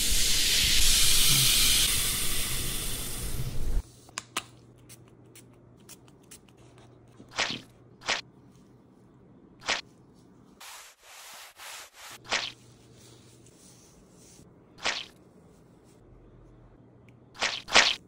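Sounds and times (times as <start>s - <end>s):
spray bottle squirt: 12.3s - 12.6s, 17.4s - 18.0s.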